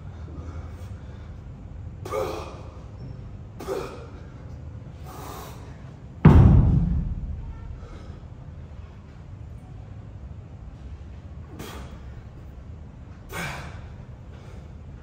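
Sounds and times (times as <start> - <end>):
heavy ringing thud: 6.2 - 8.2.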